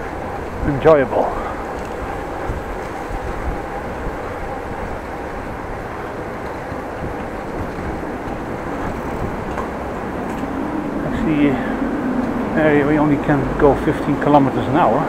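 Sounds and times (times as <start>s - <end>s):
bicycle tyre rumble on road: 0.0s - 15.0s
wind on microphone: 0.0s - 15.0s.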